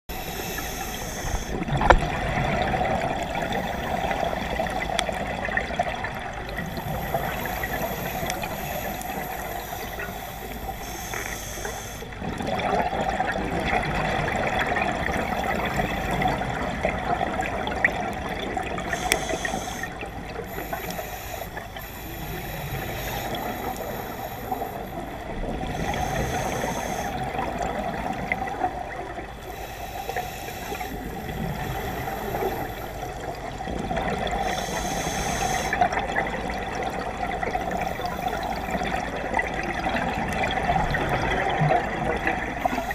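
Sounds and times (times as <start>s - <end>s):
regulator inhalation hiss: 0.1s - 1.8s, 6.5s - 12.2s, 18.8s - 27.9s, 29.4s - 36.0s, 37.6s - 39.2s, 42.6s - 42.9s
exhaled bubbles underwater: 0.1s - 42.9s.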